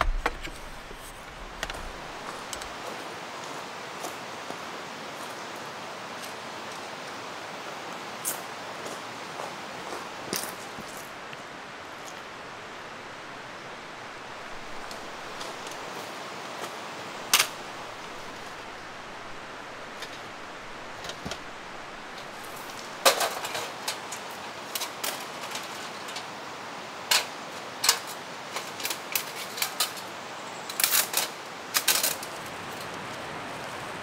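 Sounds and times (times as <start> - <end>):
sharp clicks and knocks: 0.0 - 2.7
steady hiss: 0.0 - 34.0.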